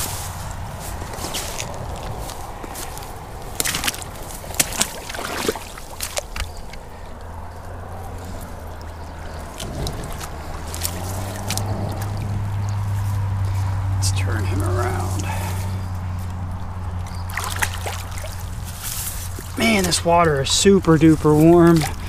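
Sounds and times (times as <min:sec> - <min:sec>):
footsteps through grass: 0:00.0 - 0:06.8, 0:07.4 - 0:22.0
low hum: 0:05.7 - 0:22.0.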